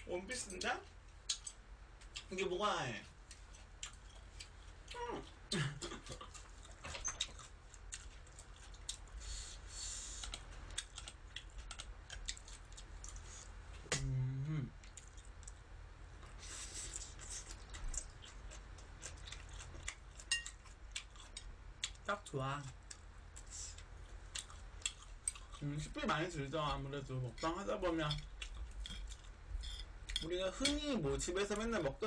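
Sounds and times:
person humming: 13.9 - 14.8.

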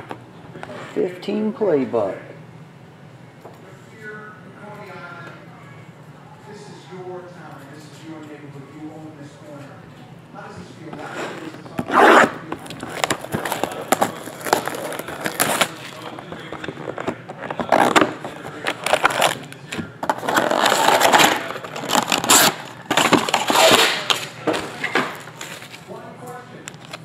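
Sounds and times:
cardboard scraping: 11.0 - 25.9
packaging rustling: 11.5 - 26.0
plastic crinkling: 11.9 - 27.0
shrink-wrap cracking: 12.5 - 25.9.

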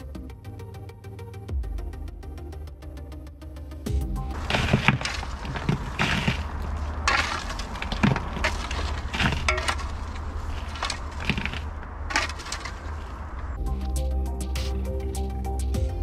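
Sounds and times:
music: 0.0 - 6.6, 13.6 - 16.0
shovel scraping into stony soil: 4.3 - 13.5.

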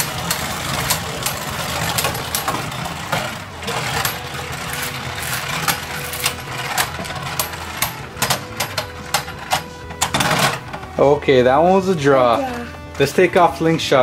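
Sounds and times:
spinning tops whirring: 0.0 - 11.1
tops clacking together: 0.0 - 11.1.

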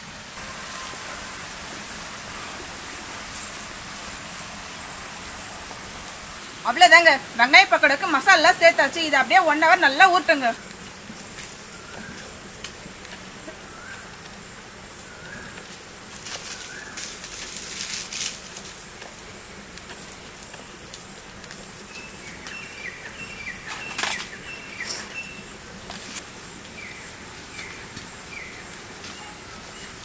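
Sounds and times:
birds chirping: 2.2 - 17.6, 18.5 - 30.0
rustling: 10.4 - 26.8.

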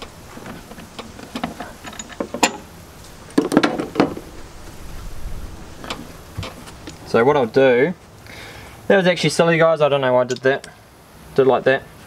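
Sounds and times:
metal hand tools clinking: 0.7 - 2.7.

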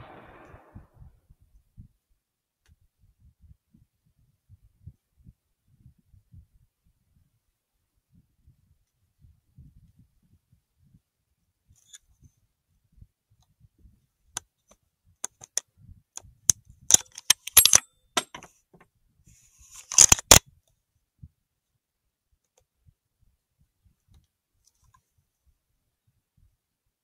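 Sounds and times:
metallic clicks and taps: 16.9 - 18.5.

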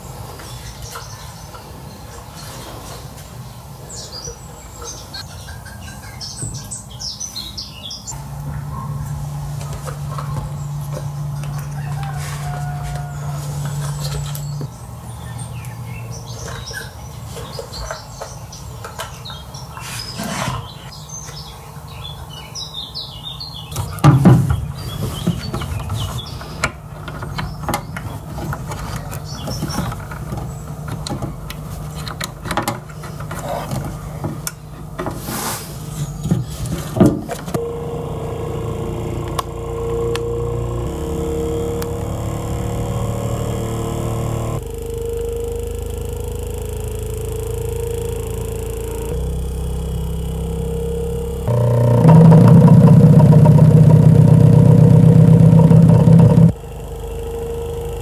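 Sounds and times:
clicks of speaker terminals: 37.4 - 52.9
low subwoofer test tone: 37.6 - 58.0.

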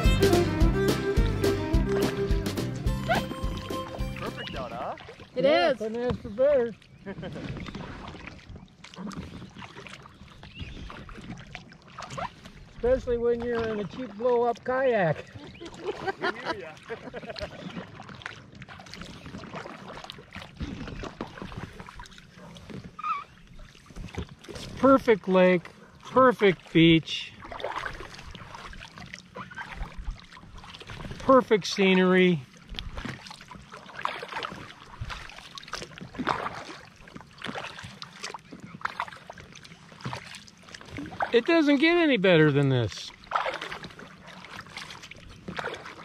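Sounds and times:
paddle splashing in water: 0.0 - 46.0
water dripping off paddle: 27.4 - 46.0.

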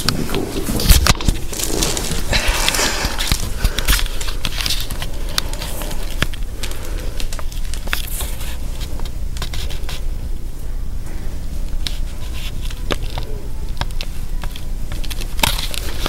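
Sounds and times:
crackling and rustling: 0.0 - 16.0
steady low hum: 0.0 - 16.0.

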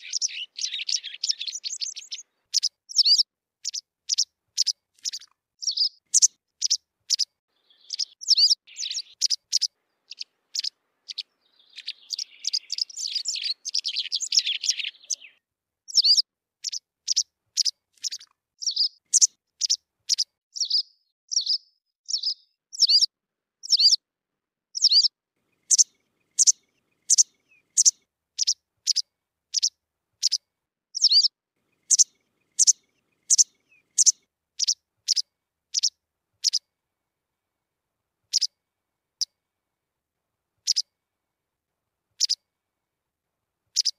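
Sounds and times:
bird chirping and twittering: 0.0 - 24.0, 24.8 - 30.4, 31.0 - 36.6.

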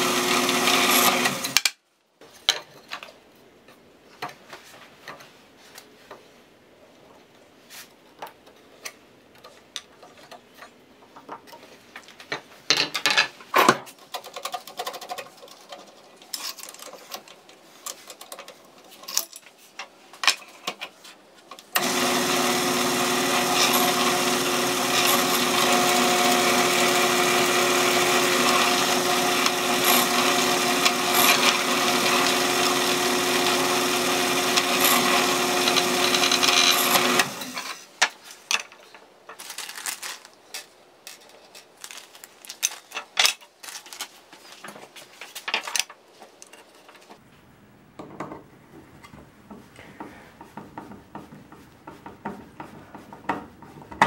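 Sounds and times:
drill press motor running: 0.0 - 1.6, 21.8 - 37.6
parts clicking and knocking: 8.2 - 22.0, 48.0 - 54.0.

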